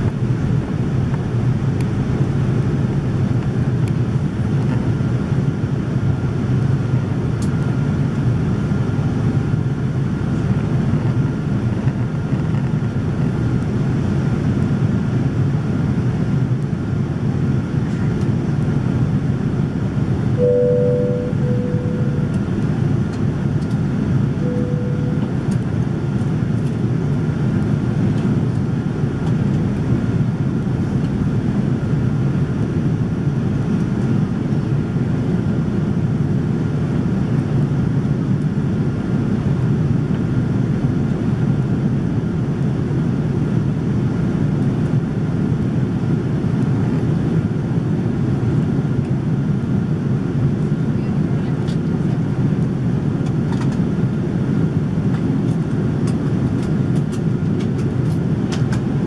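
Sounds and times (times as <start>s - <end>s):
airplane cabin engine rumble: 0.0s - 59.0s
brief cabin tones: 20.4s - 22.4s, 24.4s - 25.4s.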